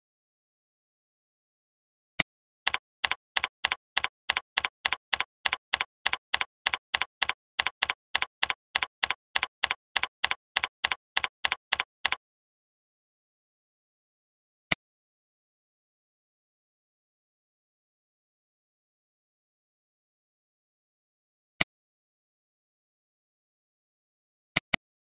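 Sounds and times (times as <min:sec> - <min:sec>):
keyboard keystroke clicks: 0:02.7 - 0:12.2
mouse click: 0:02.7 - 0:12.2, 0:24.6 - 0:24.8.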